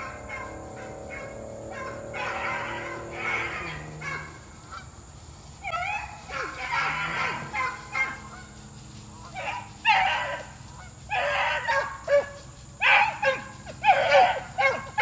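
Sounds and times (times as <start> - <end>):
hounds baying: 0.0 - 15.0.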